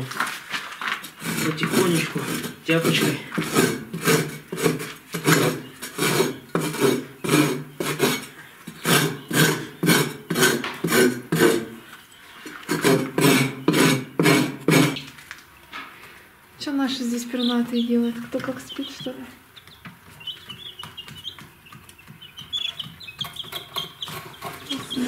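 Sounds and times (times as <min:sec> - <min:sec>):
hoe scraping plaster off wall: 0:01.0 - 0:11.8, 0:12.5 - 0:15.2, 0:23.4 - 0:25.0.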